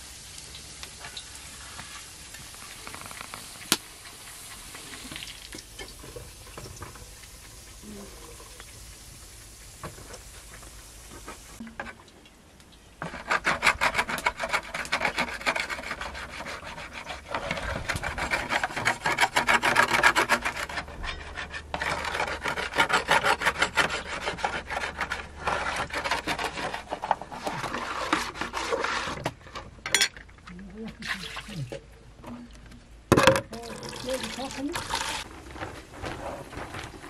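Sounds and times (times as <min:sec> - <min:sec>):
frying hiss: 0:00.0 - 0:13.1
metal spoon scraping plastic basin: 0:13.0 - 0:30.2.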